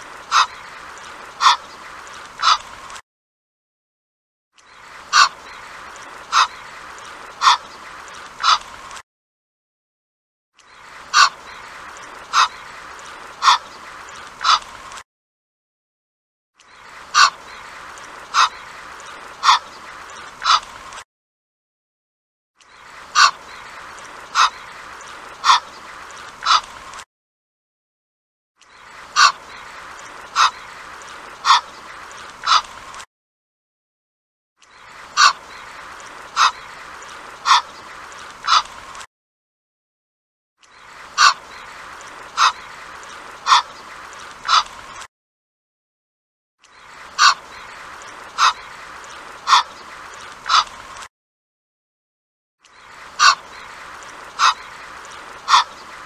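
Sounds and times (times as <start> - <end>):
goose honking: 49.5 - 49.7, 53.2 - 53.4, 55.5 - 55.8.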